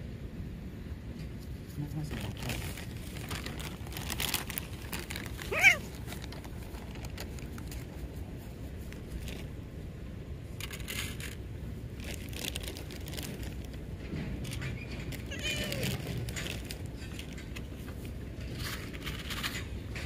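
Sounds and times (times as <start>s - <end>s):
soft rustling and crinkling: 1.2s - 20.0s
cat crying: 5.4s - 5.9s, 15.2s - 16.1s.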